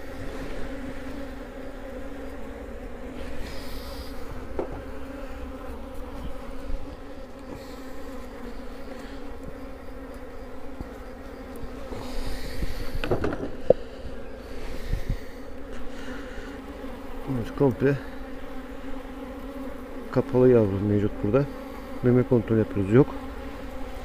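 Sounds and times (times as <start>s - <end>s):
honeybees buzzing: 0.0s - 24.0s
hive frames clicking: 4.2s - 6.5s, 8.8s - 14.3s.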